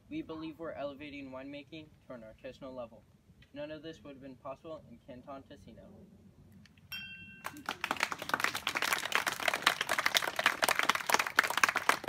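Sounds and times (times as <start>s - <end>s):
glass clinking: 6.9s - 7.6s
audience clapping: 7.4s - 12.0s.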